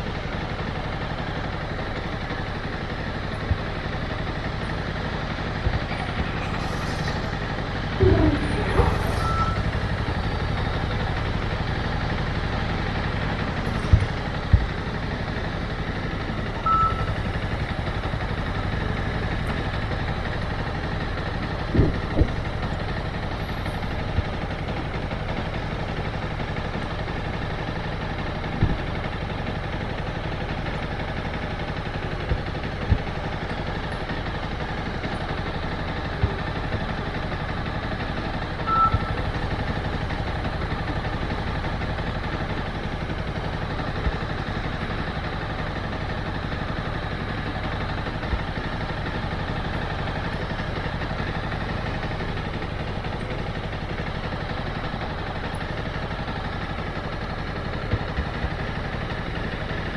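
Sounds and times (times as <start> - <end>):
motorcycle engine running: 0.0 - 59.9
short high beep: 8.0 - 9.7, 16.6 - 17.1, 38.7 - 39.2.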